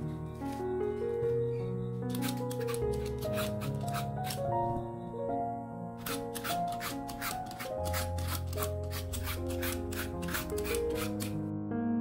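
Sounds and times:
background music: 0.0 - 12.0
peeler scraping squash skin: 2.1 - 4.5, 6.0 - 11.4.

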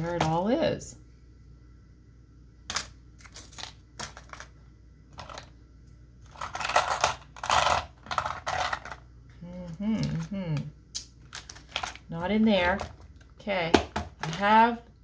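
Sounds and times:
craft supplies rattling: 6.3 - 9.0.

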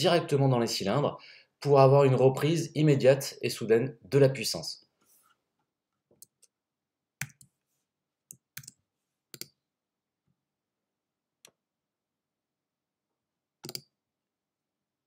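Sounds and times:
mouse and keyboard clicks: 8.3 - 9.6, 13.6 - 13.9.

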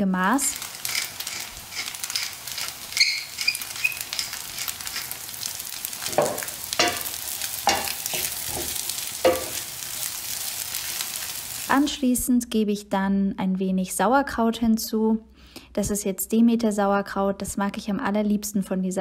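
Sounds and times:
food sizzling in a pan: 0.0 - 12.0
pepper mill grinding: 0.5 - 10.1
wooden spoon scraping pan: 0.6 - 5.2, 6.0 - 9.7.

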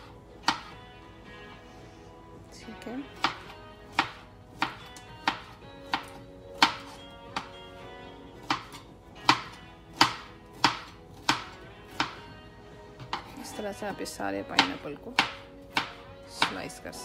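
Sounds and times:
knife slicing pineapple: 3.2 - 7.5, 8.4 - 12.3.

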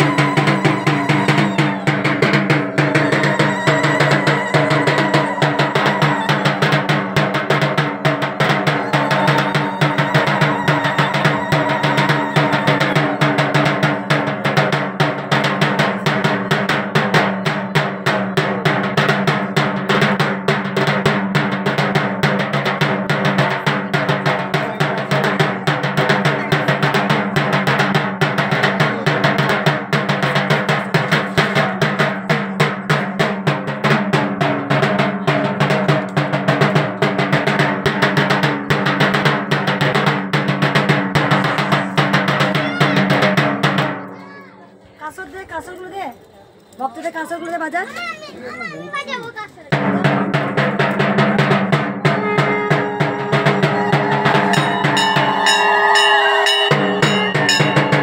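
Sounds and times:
barrel drum beaten fast: 0.0 - 44.1, 49.7 - 58.0
steady ringing tone: 54.5 - 58.0.

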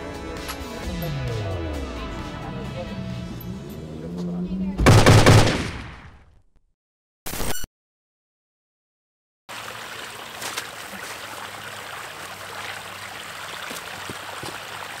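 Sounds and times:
floodwater running and trickling: 9.5 - 15.0.

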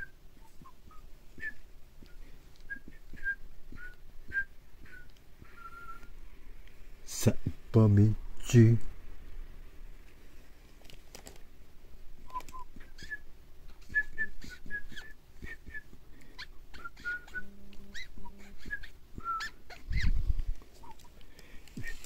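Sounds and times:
animal chirps and squeaks: 12.7 - 15.2, 16.3 - 20.2, 20.8 - 21.2.

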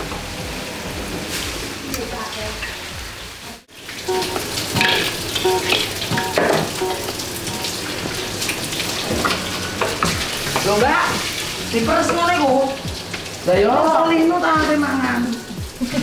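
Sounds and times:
food sizzling in hot oil: 0.3 - 16.0
metal utensils clinking: 4.1 - 11.4.

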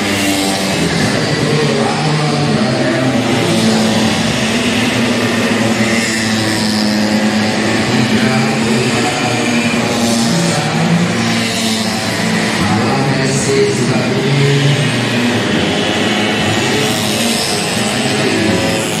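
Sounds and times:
scooter engines revving past: 0.0 - 19.0.

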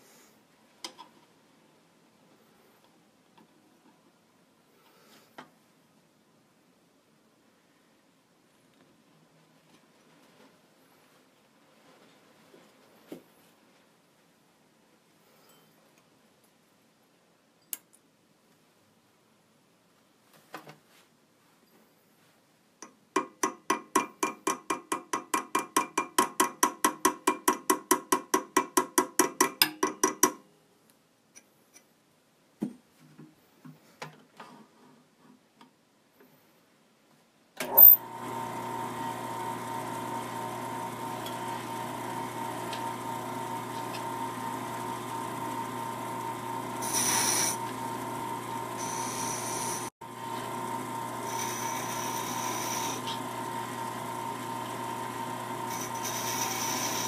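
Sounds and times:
lathe running: 37.6 - 57.0
hand tool rubbing spinning wood: 39.6 - 57.0.

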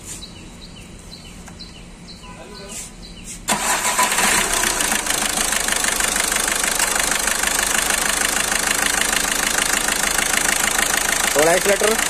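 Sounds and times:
diesel engine starting and idling: 3.5 - 12.0.

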